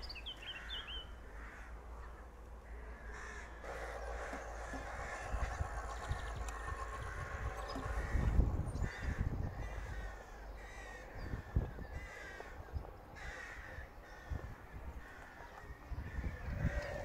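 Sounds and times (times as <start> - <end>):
crow cawing: 0.6 - 1.9, 2.6 - 12.6, 13.2 - 15.4
low rumble: 2.3 - 12.0.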